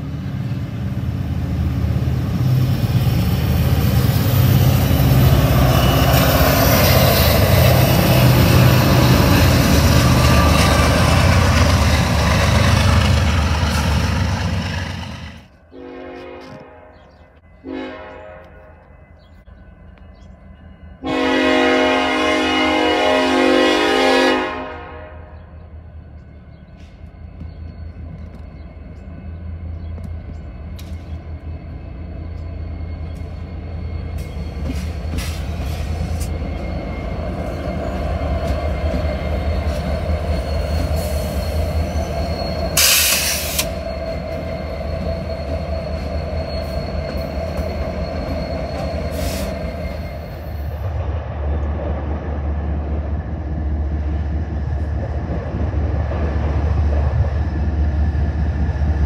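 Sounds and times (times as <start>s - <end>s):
diesel locomotive engines rumbling: 0.0s - 59.0s
steel wheels rolling on rails: 26.1s - 51.0s
wheel squeals: 26.6s - 50.8s.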